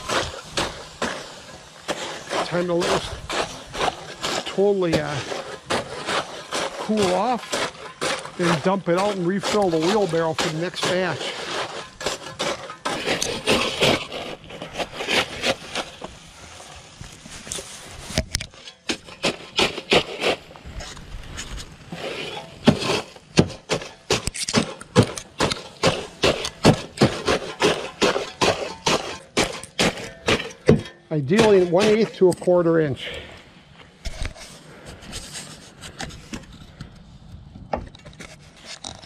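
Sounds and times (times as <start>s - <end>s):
spade chopping wet charcoal: 0.0s - 16.2s, 18.5s - 20.5s, 21.9s - 33.4s.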